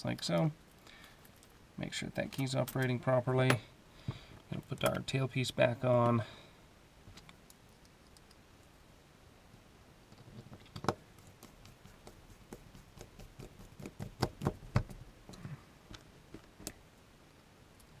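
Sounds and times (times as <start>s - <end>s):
small metal clicks and taps: 7.1s - 8.7s.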